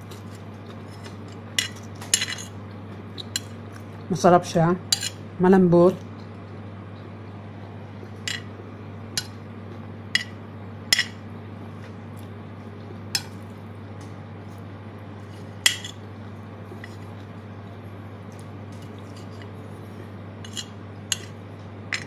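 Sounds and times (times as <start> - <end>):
steady low hum: 0.0 - 22.0
metal spoon clinking on a plate: 15.7 - 16.0, 20.4 - 22.0.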